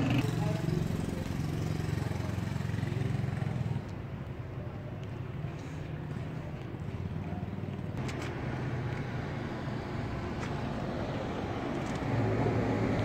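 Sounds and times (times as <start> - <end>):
cars passing on road: 5.1 - 13.0.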